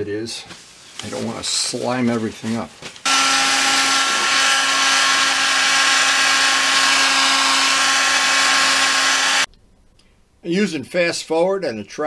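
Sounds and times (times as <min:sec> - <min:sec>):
heat gun blowing air: 0:03.1 - 0:09.5.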